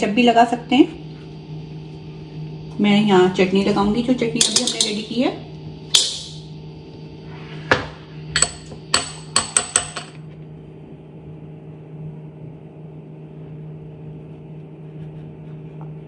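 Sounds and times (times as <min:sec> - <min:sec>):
low steady hum: 0:00.0 - 0:16.0
spoon clinking against glass bowl: 0:04.4 - 0:05.0.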